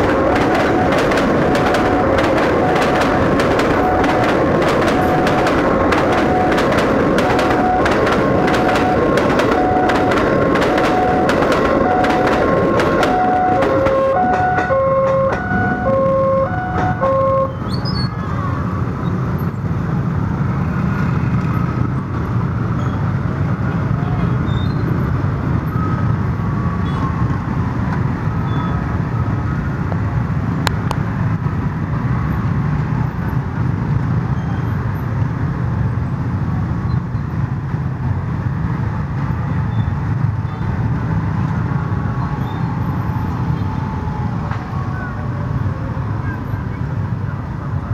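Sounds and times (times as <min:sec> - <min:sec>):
two-tone crossing alarm: 0:00.0 - 0:17.7.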